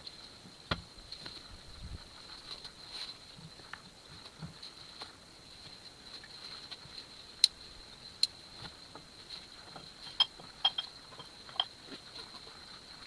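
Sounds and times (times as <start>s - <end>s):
thin high-pitched whine: 10.0s - 11.8s
short ringing clinks: 10.1s - 11.7s.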